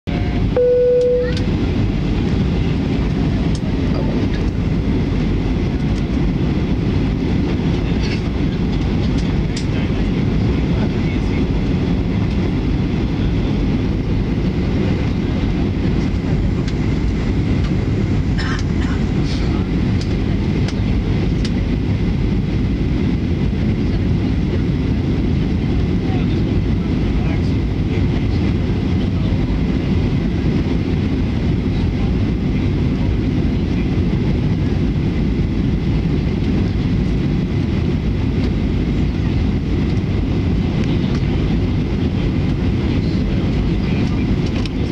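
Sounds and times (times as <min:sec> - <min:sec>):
airliner cabin rumble: 0:00.0 - 0:44.9
held tone: 0:00.1 - 0:01.5.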